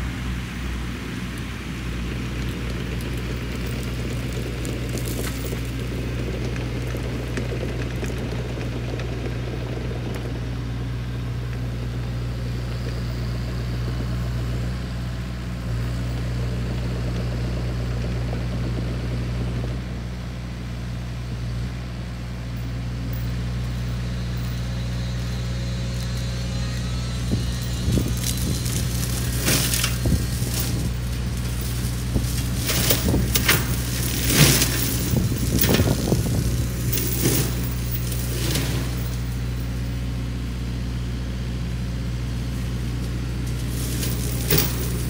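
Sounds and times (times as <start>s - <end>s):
excavator diesel engine under load: 0.0s - 45.0s
flail mulcher rushing noise: 24.6s - 40.1s.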